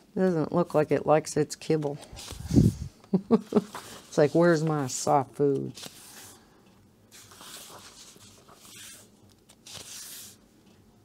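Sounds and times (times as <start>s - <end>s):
paper pages rustling: 1.8s - 2.8s, 3.4s - 6.4s, 7.1s - 10.4s.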